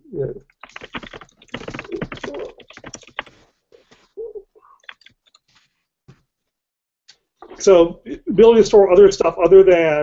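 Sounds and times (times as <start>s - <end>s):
fast typing on keyboard: 0.4s - 3.6s, 4.8s - 5.5s.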